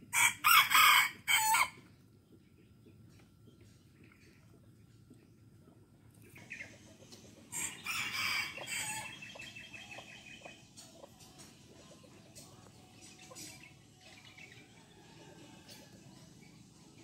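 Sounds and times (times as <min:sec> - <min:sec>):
rooster crowing: 0:00.1 - 0:01.8, 0:07.5 - 0:09.2.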